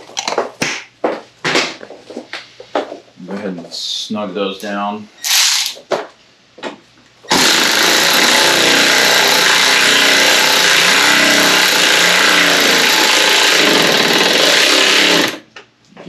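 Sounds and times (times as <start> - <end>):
motor-driven machine noise: 7.3 - 15.4.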